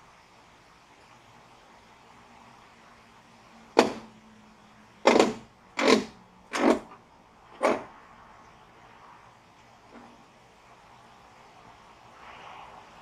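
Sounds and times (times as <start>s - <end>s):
knocks on steel frame: 3.8s - 4.1s, 5.1s - 6.9s.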